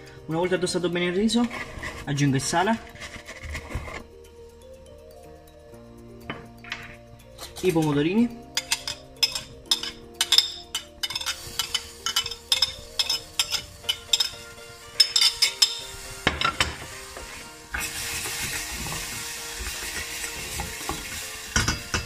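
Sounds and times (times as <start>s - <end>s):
metal spoon clinking on pan: 6.3s - 16.9s, 19.9s - 22.0s
food sizzling in oil: 6.3s - 22.0s.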